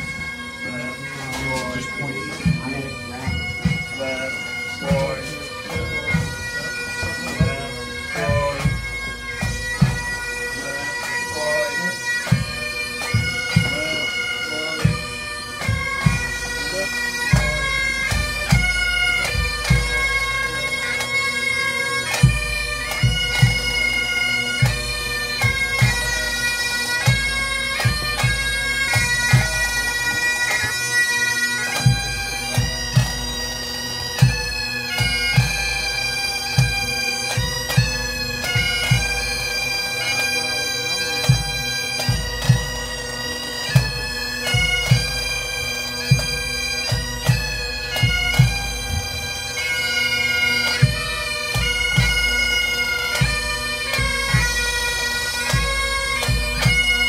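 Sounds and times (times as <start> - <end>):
bagpipes playing: 0.0 - 57.0.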